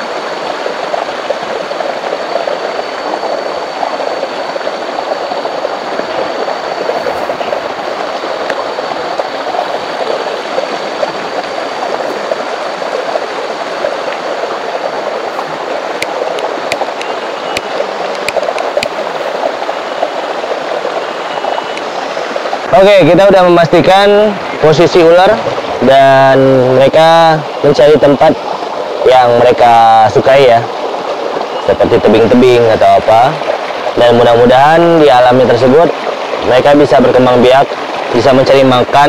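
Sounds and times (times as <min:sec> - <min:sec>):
faint high steady tone: 0:00.0 - 0:28.4
stream rushing over rocks: 0:00.0 - 0:39.0.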